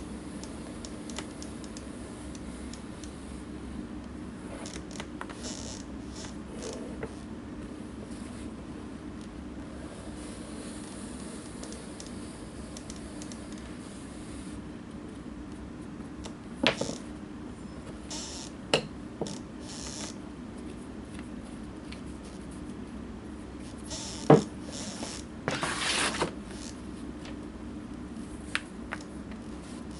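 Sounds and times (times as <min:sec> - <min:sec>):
short rubbing scrapes: 0:24.8 - 0:26.3.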